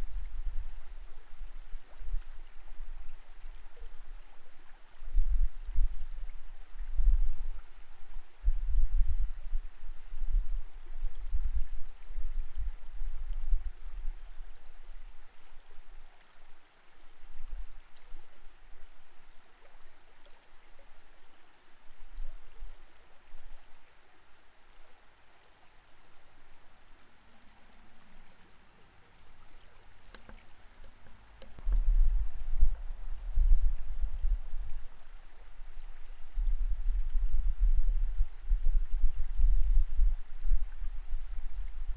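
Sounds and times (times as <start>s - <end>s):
low rumbling water surges: 0.0s - 41.9s
muffled underwater water hiss: 0.0s - 41.9s
faint clicks: 27.2s - 31.8s.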